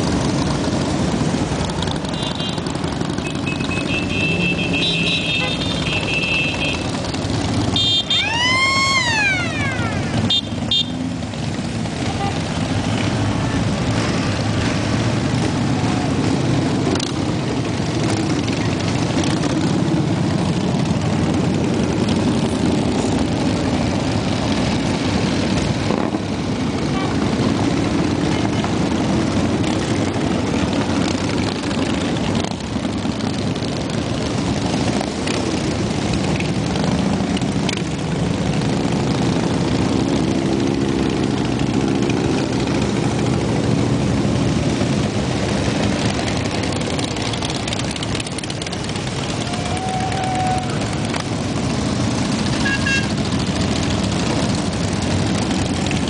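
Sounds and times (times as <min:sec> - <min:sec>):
motorcycle engines rumbling: 0:00.0 - 0:56.0
high-pitched whoop: 0:08.2 - 0:10.1, 0:49.4 - 0:51.1.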